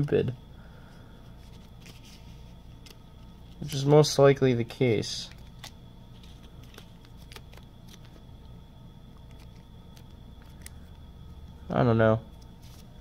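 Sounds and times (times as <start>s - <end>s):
card sleeve clicks and crinkles: 1.4s - 3.9s, 5.2s - 8.2s, 9.1s - 11.0s.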